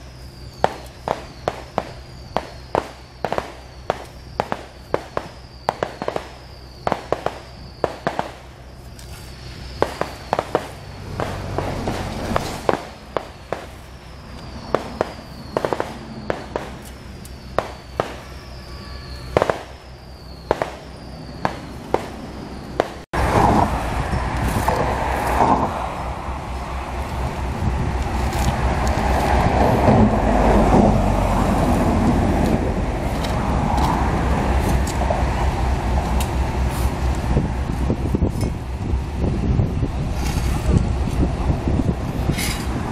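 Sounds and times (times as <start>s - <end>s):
low rumble: 0.0s - 42.9s
shovels scraping asphalt: 8.1s - 19.6s, 24.4s - 25.7s, 28.0s - 29.5s, 32.4s - 35.0s, 36.1s - 37.2s, 40.1s - 41.3s, 42.1s - 42.9s.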